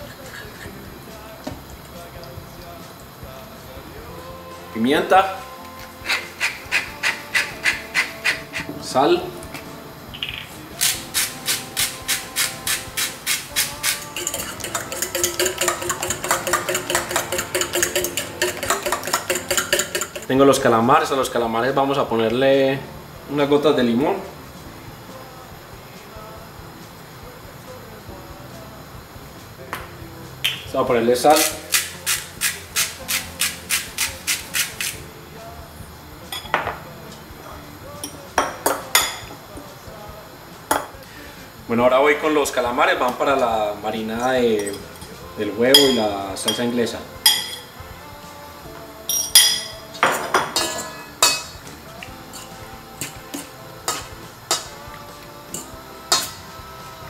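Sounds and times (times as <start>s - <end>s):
fork whisking egg in metal bowl: 6.0s - 8.7s, 10.8s - 20.4s, 31.3s - 35.0s, 52.3s - 54.8s, 55.5s - 56.4s
salt grinder crunching: 10.8s - 20.3s, 31.3s - 35.0s.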